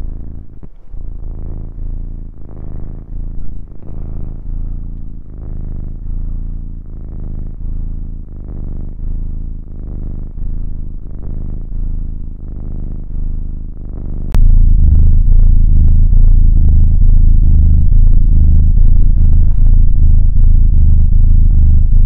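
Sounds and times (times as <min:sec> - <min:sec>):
kittens purring: 0:00.0 - 0:22.0.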